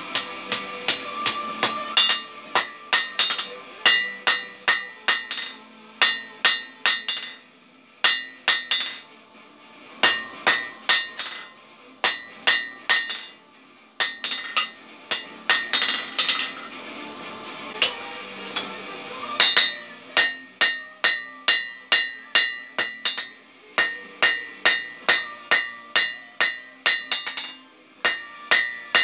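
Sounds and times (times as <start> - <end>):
hammer striking steel on anvil: 0.0 - 9.2, 10.0 - 16.7, 17.8 - 29.0.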